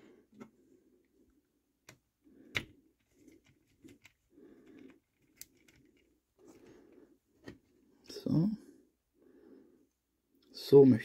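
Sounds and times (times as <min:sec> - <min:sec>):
soft handling noise: 0:01.8 - 0:08.1.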